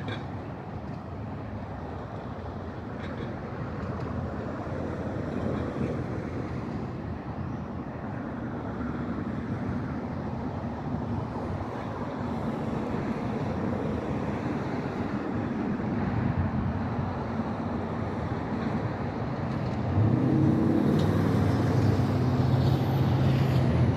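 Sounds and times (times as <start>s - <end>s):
wind noise on microphone: 9.3s - 23.9s.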